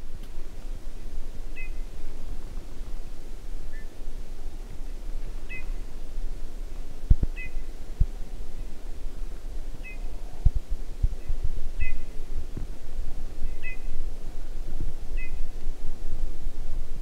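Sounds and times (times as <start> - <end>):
steady low rumble: 0.0 - 17.0
bullfinch calling: 1.6 - 1.8, 5.5 - 5.8, 7.4 - 7.7, 9.8 - 10.2, 11.2 - 12.2, 13.4 - 13.9, 15.2 - 15.4.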